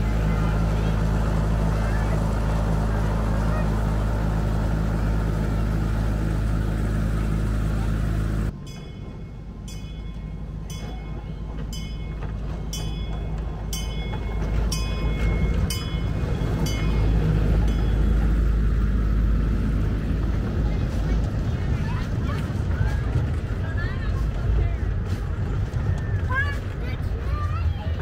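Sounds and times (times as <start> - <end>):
low engine hum: 0.0 - 28.0
train rumbling on track: 0.0 - 28.0
ringing clicks of train wheels: 8.5 - 19.5.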